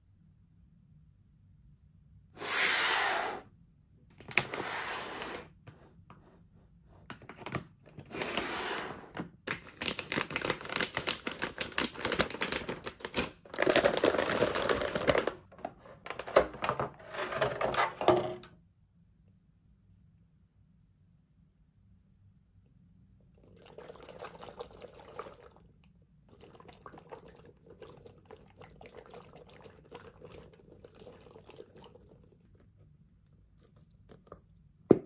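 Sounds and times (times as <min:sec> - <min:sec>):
plastic packaging crinkling: 0:09.5 - 0:17.9.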